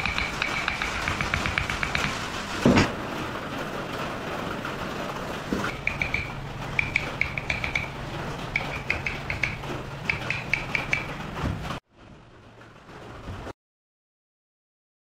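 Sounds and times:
chisel tapping on wood: 0:00.0 - 0:02.9, 0:05.7 - 0:07.9, 0:08.6 - 0:11.1.

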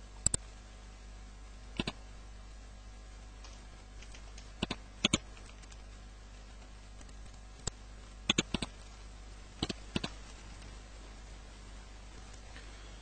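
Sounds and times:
keyboard and mouse clicks: 0:00.2 - 0:00.4, 0:01.8 - 0:02.0, 0:03.4 - 0:05.8, 0:07.0 - 0:08.8, 0:09.6 - 0:10.6.

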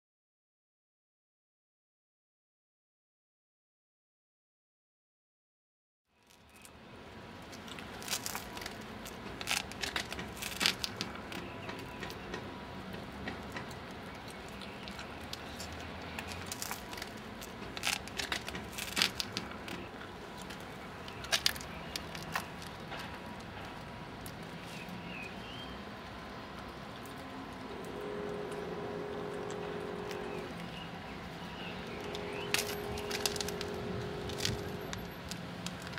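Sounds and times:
steady background hum: 0:06.2 - 0:35.9
sharp clicks and crackles: 0:07.5 - 0:24.6, 0:31.8 - 0:35.9.

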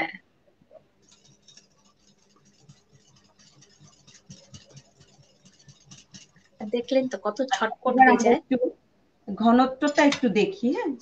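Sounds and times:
whisk scraping glass bowl: 0:01.0 - 0:08.2.

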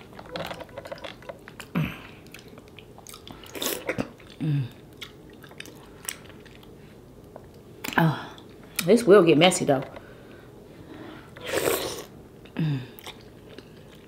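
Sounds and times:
wet mouth noises and chewing: 0:01.0 - 0:08.9, 0:11.9 - 0:14.0.

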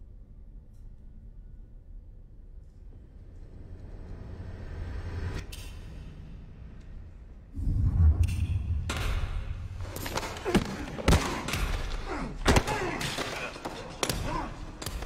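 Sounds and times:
punches and impacts: 0:08.9 - 0:15.0.

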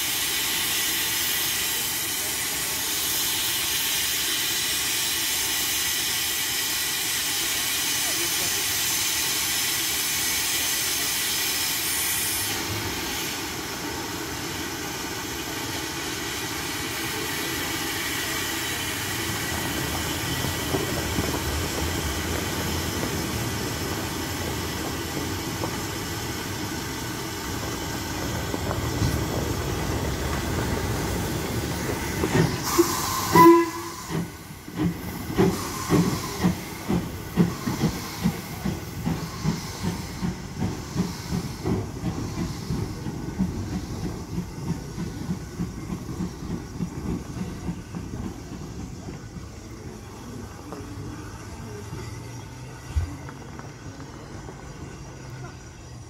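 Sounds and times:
steam hissing: 0:00.0 - 0:56.0
steam locomotive chuffing: 0:00.0 - 0:56.0
steam whistle blast: 0:32.6 - 0:34.3.

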